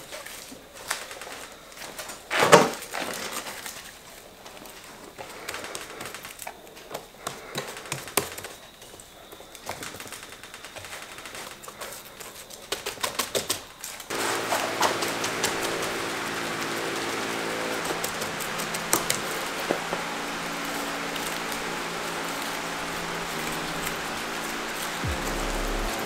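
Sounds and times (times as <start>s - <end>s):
steady hiss and hum: 14.1s - 26.0s.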